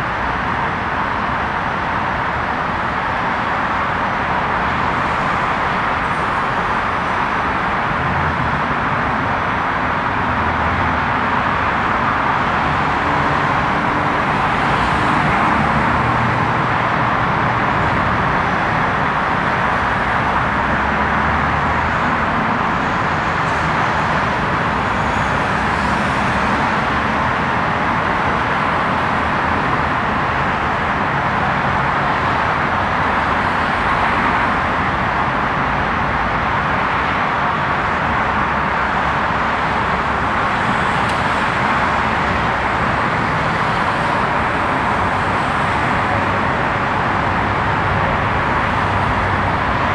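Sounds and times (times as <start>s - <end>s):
passing cars: 0.0s - 49.9s.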